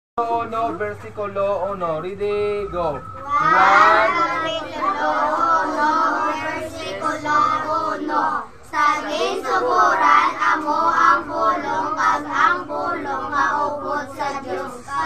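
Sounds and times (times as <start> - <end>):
children reading aloud in unison: 3.0 - 15.0.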